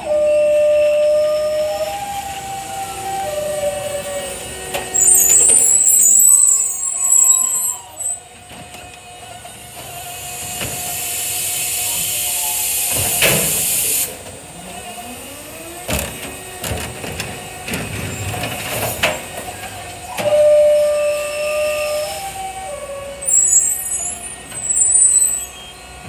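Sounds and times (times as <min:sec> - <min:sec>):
hydraulic hiss: 0:09.6 - 0:14.5, 0:20.2 - 0:26.0.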